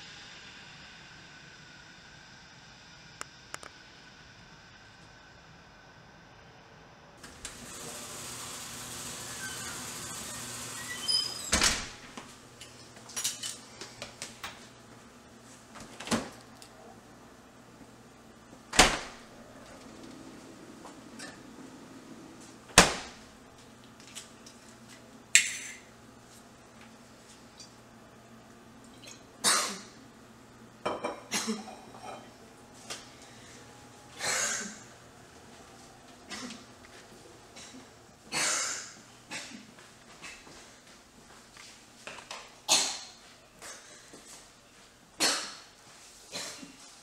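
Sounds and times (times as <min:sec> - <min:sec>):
door squeaking: 0:09.2 - 0:12.1
refrigerator door thump: 0:18.8 - 0:19.2, 0:22.8 - 0:23.2
woman coughing: 0:29.4 - 0:30.0, 0:31.1 - 0:31.9, 0:34.2 - 0:34.8, 0:36.3 - 0:36.7, 0:37.6 - 0:39.7, 0:45.2 - 0:45.7, 0:46.3 - 0:46.8.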